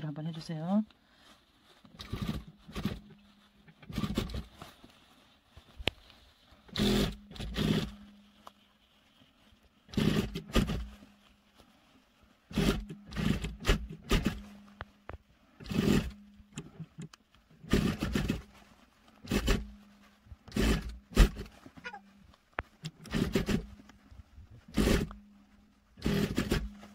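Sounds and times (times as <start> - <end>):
sewing machine motor humming: 2.0 - 3.1, 3.8 - 4.5, 6.7 - 8.1, 9.9 - 10.9, 12.5 - 14.5, 15.6 - 16.9, 17.6 - 18.4, 19.2 - 19.8, 20.5 - 21.5, 22.9 - 23.8, 24.7 - 25.2, 26.0 - 26.9
sewing machine stitching: 2.0 - 3.2, 3.8 - 4.5, 6.7 - 8.1, 9.9 - 11.0, 12.5 - 14.5, 15.6 - 18.5, 19.2 - 19.8, 20.4 - 21.5, 22.8 - 23.8, 24.7 - 25.2, 26.0 - 26.9.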